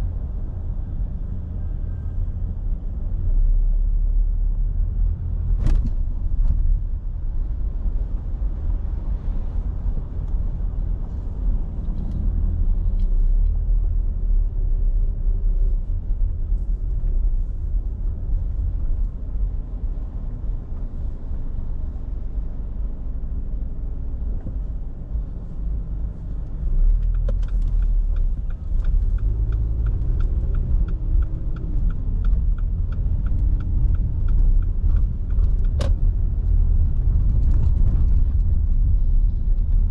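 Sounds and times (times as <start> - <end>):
car engine: 0.0 - 39.9
road and tyre rumble: 0.0 - 39.9
turn signal ticking: 24.3 - 39.9.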